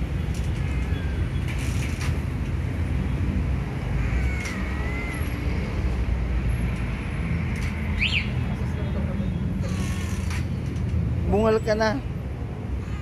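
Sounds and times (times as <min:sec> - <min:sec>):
road traffic rumble: 0:00.0 - 0:13.0
cat meowing: 0:04.0 - 0:05.3.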